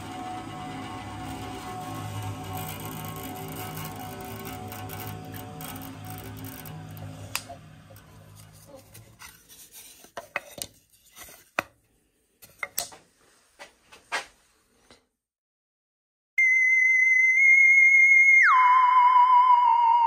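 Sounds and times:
bandsaw motor coasting down: 0.0 - 8.7.

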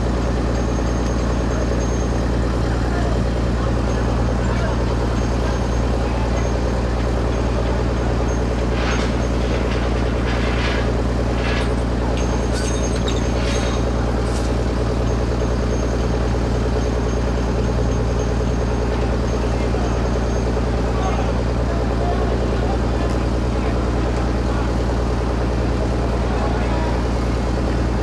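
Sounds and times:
diesel engine droning: 0.0 - 28.0.

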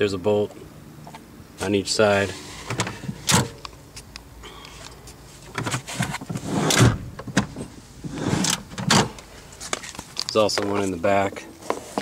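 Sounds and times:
rustling and scraping in car seat: 1.6 - 3.6, 4.7 - 12.0.

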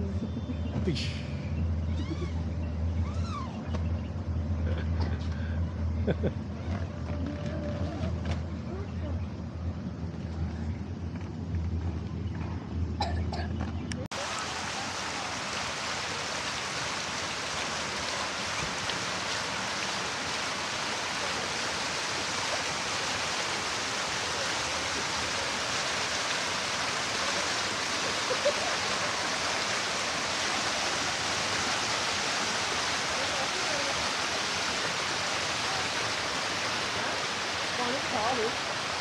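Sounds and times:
fountain water splashing: 14.1 - 39.0.

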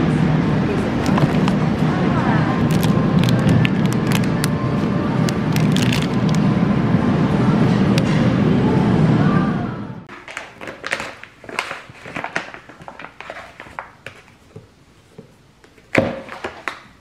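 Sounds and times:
plastic packaging crinkling: 2.6 - 4.6, 5.3 - 6.4, 10.1 - 14.5.

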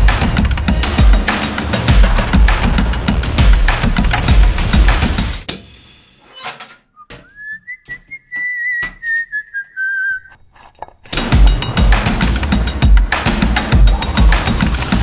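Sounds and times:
drum-backed music: 0.0 - 5.8, 11.1 - 15.0
high whistle: 7.0 - 10.4.

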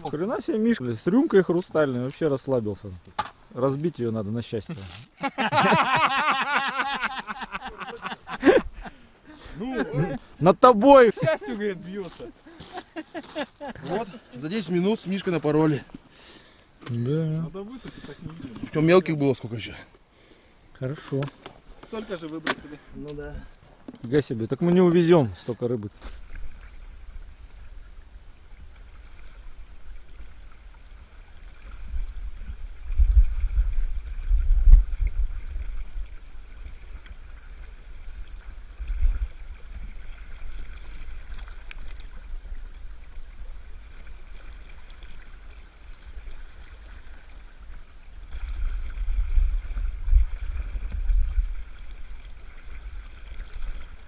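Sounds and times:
river rushing and gurgling: 5.1 - 16.5
wind buffeting on microphone: 31.7 - 36.3.

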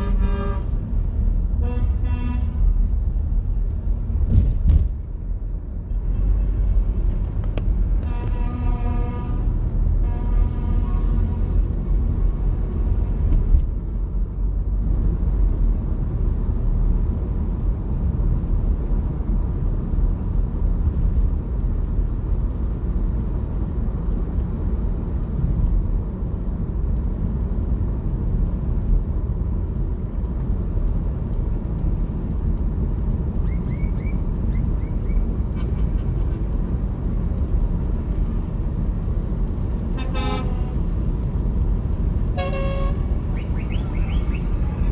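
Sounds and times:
car horn tone: 0.0 - 0.7, 1.6 - 2.6, 8.0 - 9.4, 40.0 - 40.8, 42.3 - 44.9
car road and engine rumble: 0.0 - 44.9.

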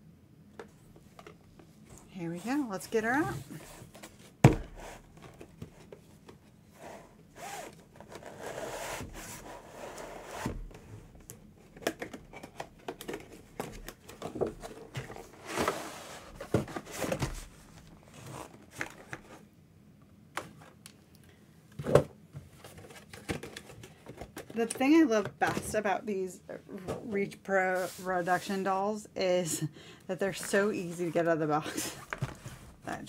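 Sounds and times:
cardboard scraping and rubbing: 6.7 - 10.6.

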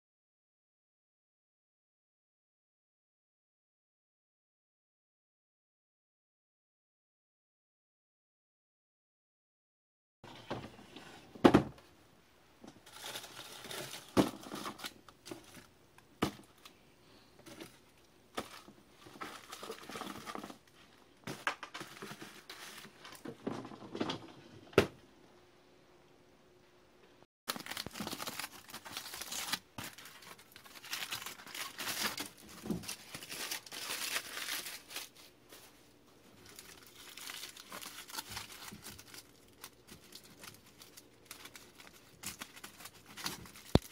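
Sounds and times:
aluminium foil crinkling: 12.8 - 15.7, 17.4 - 23.3, 27.5 - 43.9.

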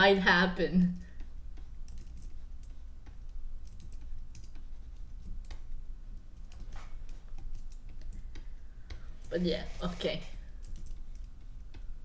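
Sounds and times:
low steady hum: 0.0 - 12.0
computer keyboard keys clicking: 1.0 - 9.0, 10.5 - 11.9.

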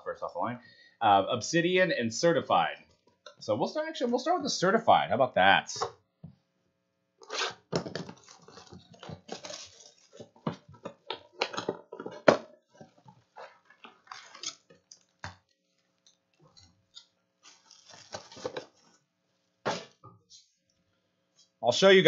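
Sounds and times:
plastic shrink-wrap crinkling and tearing: 8.1 - 10.5, 13.5 - 16.2, 16.8 - 19.0.

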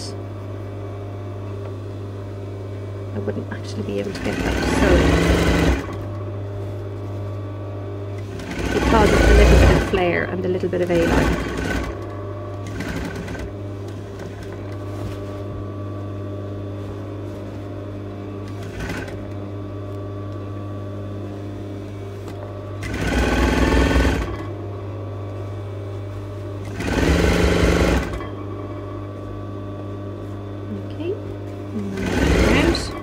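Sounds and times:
sewing machine motor hum: 0.8 - 33.0
sewing machine stitching: 4.1 - 6.1, 8.2 - 10.0, 10.8 - 14.8, 18.4 - 19.3, 22.3 - 24.5, 26.6 - 28.4, 31.8 - 33.0.

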